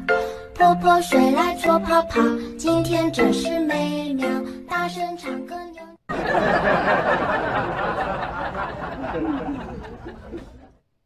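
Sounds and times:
crowd laughing and chattering: 0:06.1 - 0:10.8.

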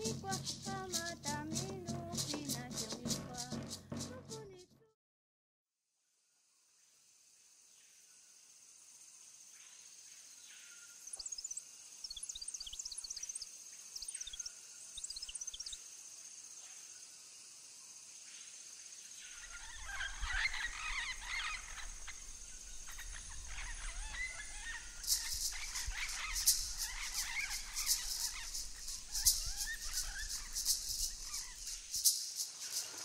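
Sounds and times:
insect drone: 0:00.0 - 0:04.5, 0:06.0 - 0:33.0
quick chirping calls: 0:11.2 - 0:15.8, 0:19.3 - 0:33.0.

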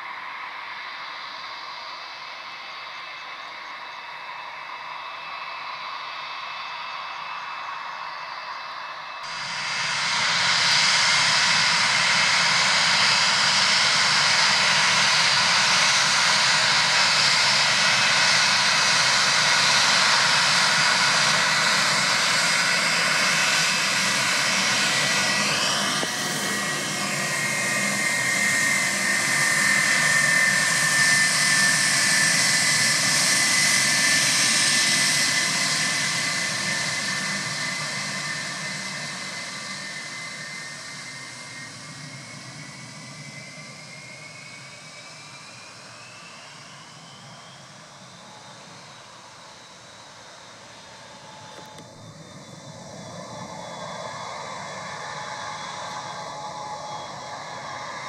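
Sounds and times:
jet engine whine: 0:00.0 - 0:58.0.

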